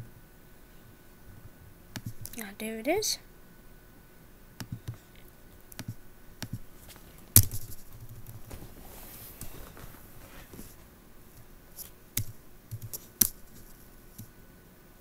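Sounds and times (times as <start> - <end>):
laptop keys and trackpad clicking: 5.8 - 6.6, 12.2 - 13.4.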